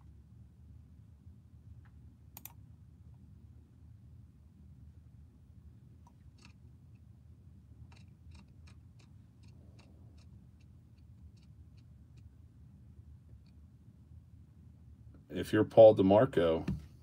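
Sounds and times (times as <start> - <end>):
low steady hum: 0.0 - 17.0
computer mouse clicking: 2.3 - 2.6, 6.0 - 6.6, 7.9 - 12.3.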